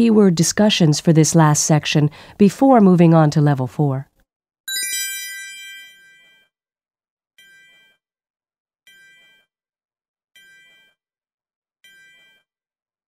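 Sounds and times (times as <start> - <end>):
bright chime: 4.7 - 6.3.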